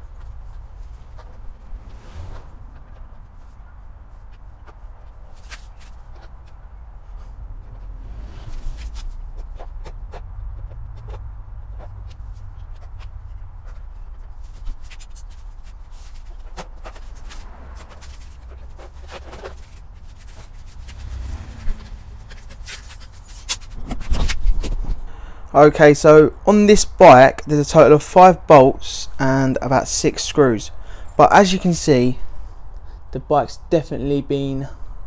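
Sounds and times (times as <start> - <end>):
steady low rumble: 0.0 - 5.4, 6.0 - 9.7, 16.8 - 25.5.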